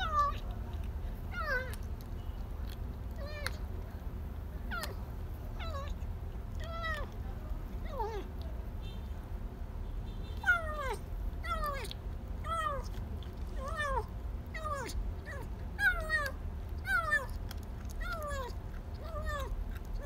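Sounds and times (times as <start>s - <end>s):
kitten meowing: 1.3s - 1.8s, 5.6s - 6.0s, 10.4s - 12.9s, 13.6s - 17.4s, 18.0s - 19.5s.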